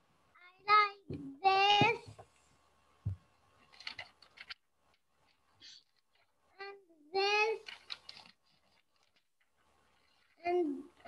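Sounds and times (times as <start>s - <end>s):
clicks and rustles: 3.1s - 6.4s, 7.6s - 11.0s.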